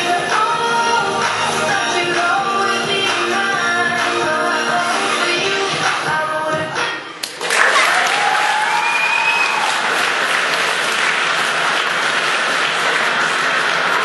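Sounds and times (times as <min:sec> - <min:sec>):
music: 0:00.0 - 0:07.9
audience applauding: 0:07.2 - 0:14.0.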